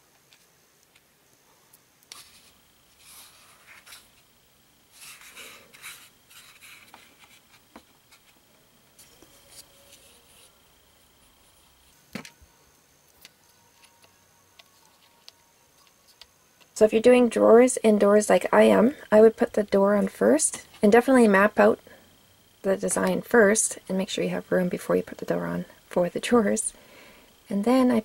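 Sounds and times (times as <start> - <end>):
cardboard rustling and scraping: 2.1 - 4.2, 4.9 - 8.4.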